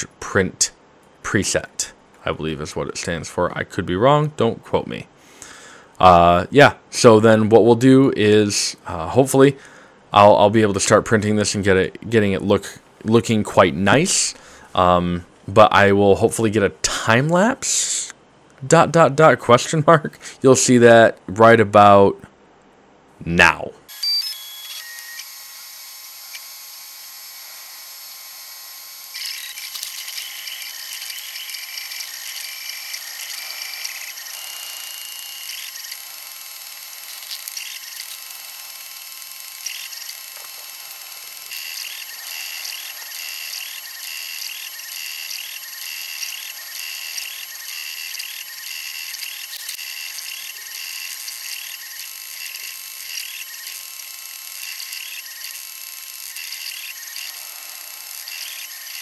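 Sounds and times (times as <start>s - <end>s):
stepper motors whining: 23.9s - 59.0s
steady high hum: 27.2s - 59.0s.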